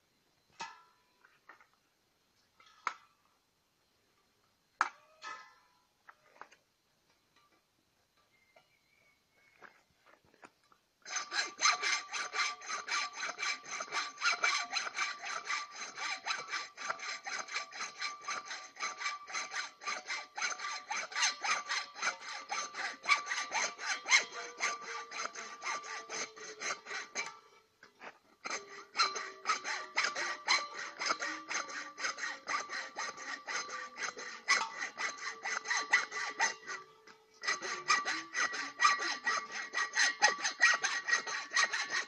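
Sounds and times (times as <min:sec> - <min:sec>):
hacksaw cutting brass: 0:11.1 - 0:27.4, 0:28.4 - 0:42.0.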